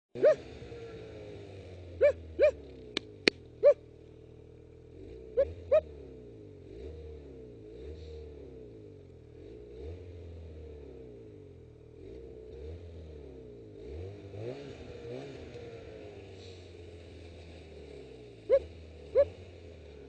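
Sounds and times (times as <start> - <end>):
snowmobile engine running: 14.2 - 20.0.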